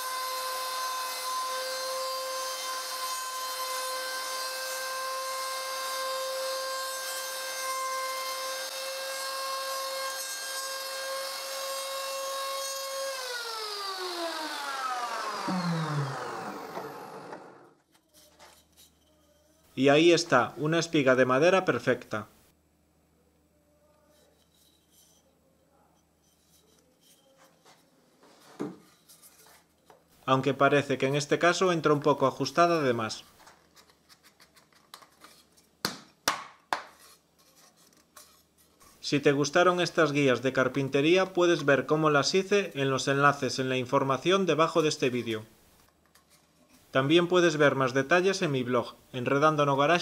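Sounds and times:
router whining cutting wood: 0:00.0 - 0:17.8.

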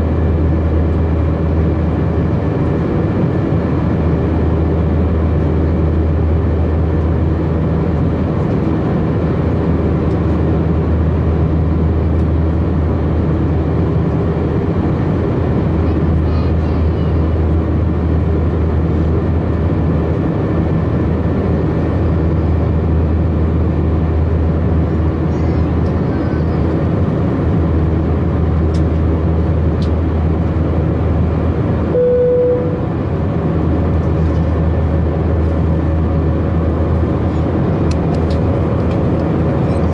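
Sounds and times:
airplane cabin engine drone: 0:00.0 - 0:39.9
short steady tone: 0:31.9 - 0:32.9.

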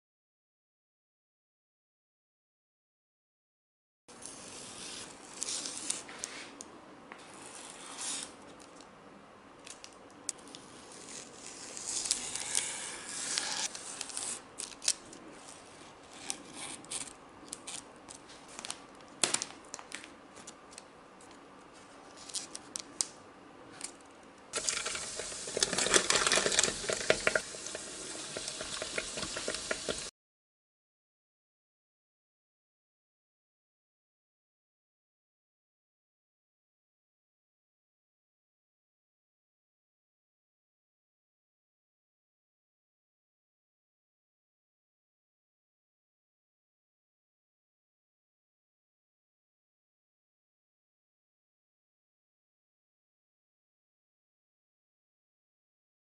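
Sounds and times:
paper rustling and crinkling: 0:24.6 - 0:27.8
dough sizzling in hot oil: 0:24.6 - 0:30.1.

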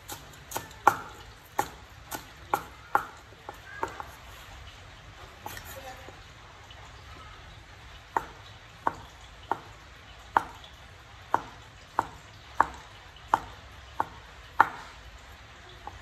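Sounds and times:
cleaver chopping on wooden board: 0:00.0 - 0:04.2, 0:08.1 - 0:10.6, 0:11.3 - 0:15.0.

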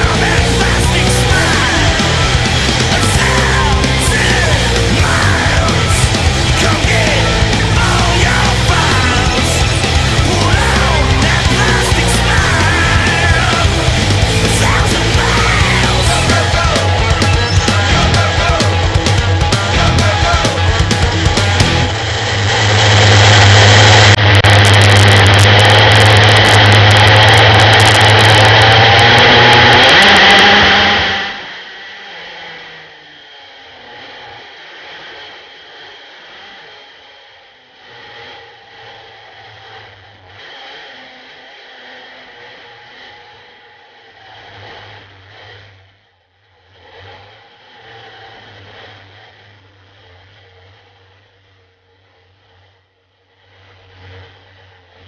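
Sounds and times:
rushing noise: 0:00.0 - 0:32.4
go-kart engine running hard: 0:00.0 - 0:45.3.

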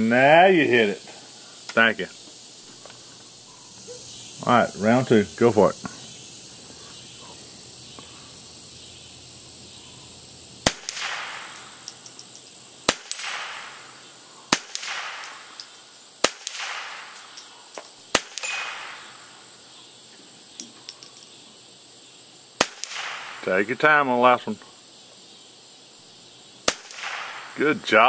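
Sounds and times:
rifle shots: 0:10.6 - 0:11.7, 0:18.1 - 0:19.0, 0:22.6 - 0:23.4, 0:26.7 - 0:27.5.

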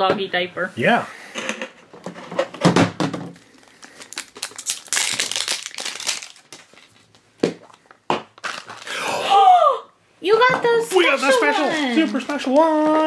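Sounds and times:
plastic bag crinkling: 0:03.3 - 0:09.1.

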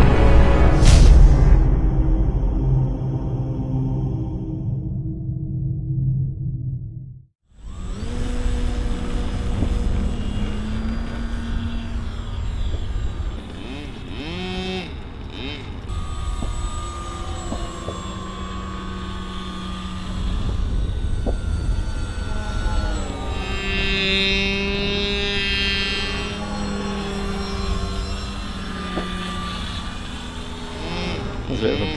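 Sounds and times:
low rumble: 0:00.0 - 0:31.9
model plane engine and propeller: 0:07.5 - 0:31.9.

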